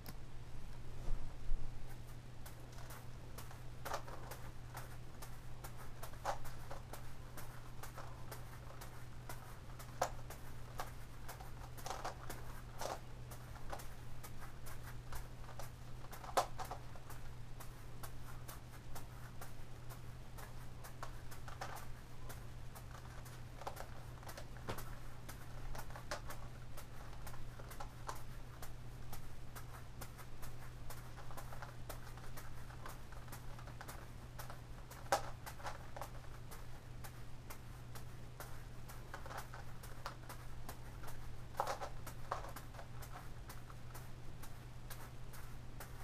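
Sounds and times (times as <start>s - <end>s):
steady low hum: 0.0s - 46.0s
plastic puzzle clicking and rattling: 7.9s - 13.8s, 31.2s - 36.3s, 39.1s - 43.7s.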